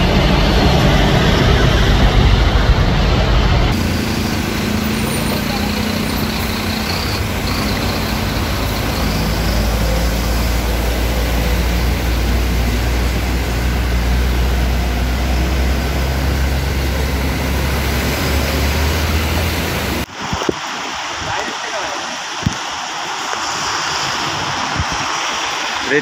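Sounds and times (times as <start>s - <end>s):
heavy truck engines rumbling: 0.0s - 20.1s
rain: 0.0s - 26.0s
rushing floodwater: 0.0s - 26.0s.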